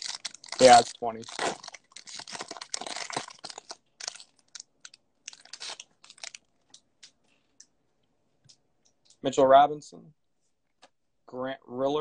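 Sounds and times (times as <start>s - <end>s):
wrapper tearing and crinkling: 0.0s - 6.5s.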